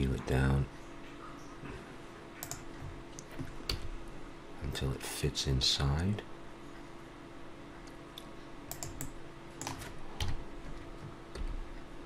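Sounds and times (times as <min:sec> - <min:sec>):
faint hum: 0:00.0 - 0:12.0
keyboard keystrokes: 0:02.4 - 0:02.6, 0:08.7 - 0:10.4.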